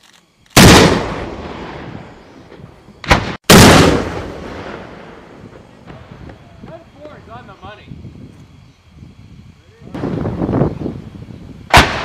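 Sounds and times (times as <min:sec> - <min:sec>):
recoilless rifle firing: 0:00.5 - 0:01.5, 0:03.0 - 0:04.3.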